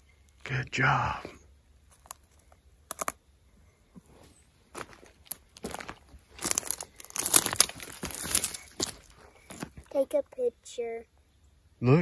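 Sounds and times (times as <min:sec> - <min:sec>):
dry leaves and twigs crunching: 0:01.8 - 0:10.0.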